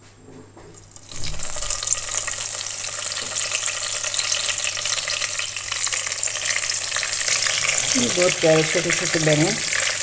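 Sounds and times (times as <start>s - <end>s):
oil sizzling in a wok: 0.8s - 10.0s.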